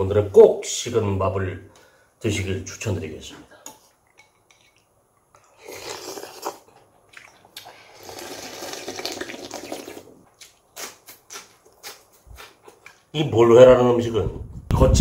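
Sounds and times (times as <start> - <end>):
slurping soup: 5.4 - 10.3.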